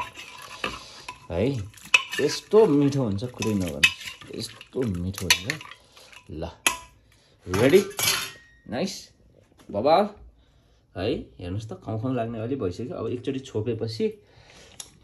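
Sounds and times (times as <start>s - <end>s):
metal ladle clinking against pot: 0.0s - 8.6s.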